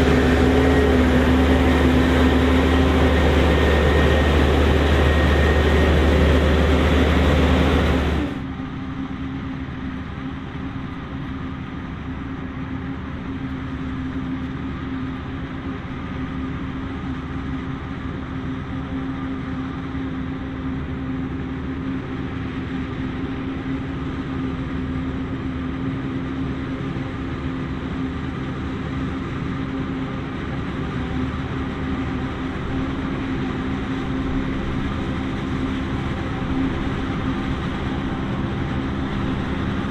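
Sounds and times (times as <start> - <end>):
tractor engine: 0.0 - 8.8, 19.4 - 39.9
forage harvester engine drone: 0.0 - 39.9.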